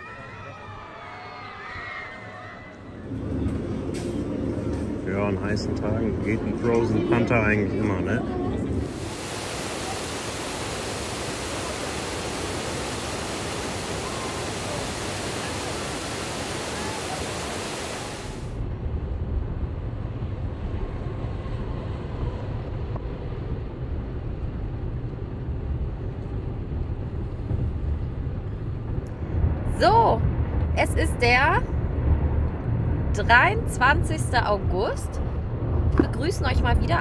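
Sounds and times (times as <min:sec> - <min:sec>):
steady rushing hiss: 0:08.8 - 0:18.6.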